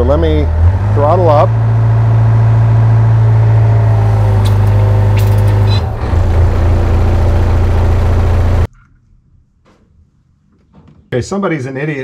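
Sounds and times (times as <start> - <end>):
diesel engine running: 0.0 - 8.7.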